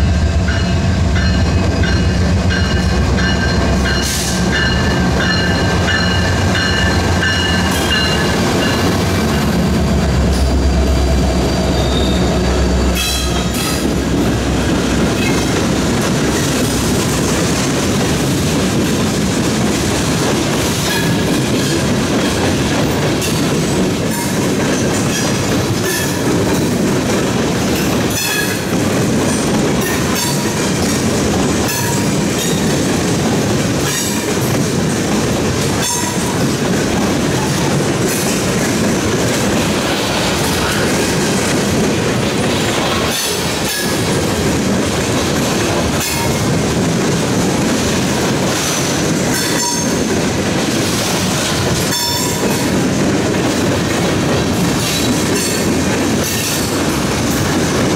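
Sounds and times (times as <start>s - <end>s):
freight train rumbling past: 0.0s - 57.9s
wheels clacking over rail joints: 0.5s - 57.9s.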